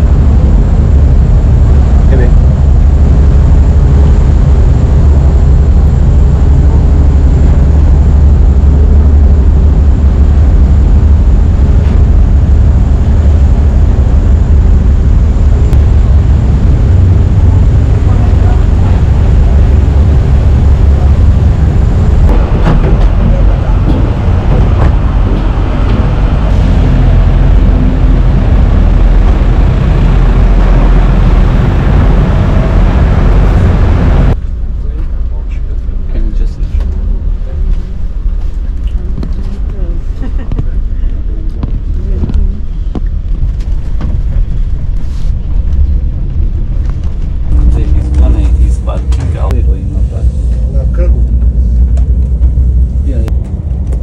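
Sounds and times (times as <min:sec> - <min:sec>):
ferry engines rumbling: 0:00.0 - 0:54.0.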